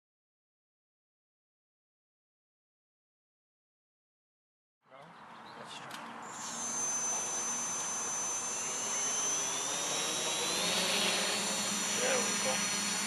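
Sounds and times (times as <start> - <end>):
drone motors whining: 6.2 - 13.0.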